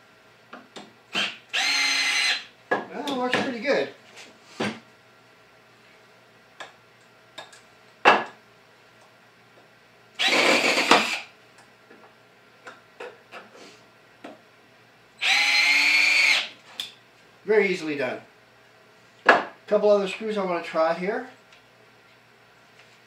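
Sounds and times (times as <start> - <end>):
drill driving screw into wood: 1.1 - 2.5, 10.2 - 11.3, 15.2 - 16.6.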